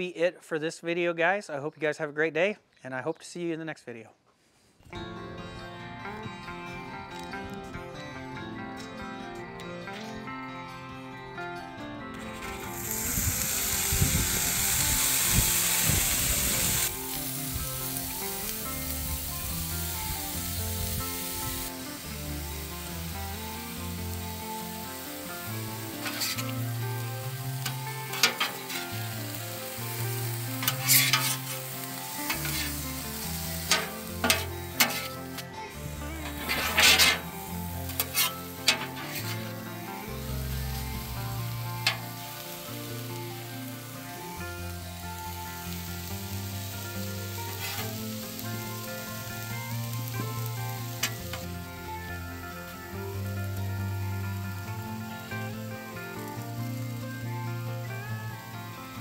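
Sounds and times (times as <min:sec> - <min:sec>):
background music: 0:04.9 - 0:59.0
food sizzling on a griddle: 0:12.3 - 0:59.0
metal spatulas scraping and clacking: 0:26.0 - 0:26.6, 0:28.1 - 0:28.9, 0:30.6 - 0:31.6, 0:32.3 - 0:32.8, 0:33.6 - 0:35.5, 0:36.2 - 0:39.5.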